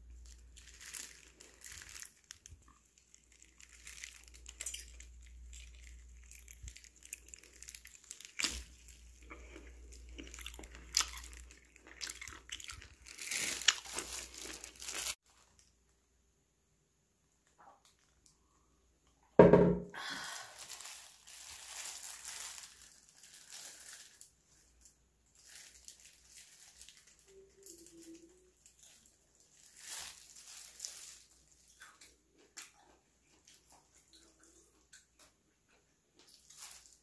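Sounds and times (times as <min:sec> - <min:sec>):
crackly rustling: 0:00.0 - 0:16.0, 0:20.6 - 0:37.0
wet chewing: 0:00.8 - 0:15.1
sharp knock: 0:19.4 - 0:19.9.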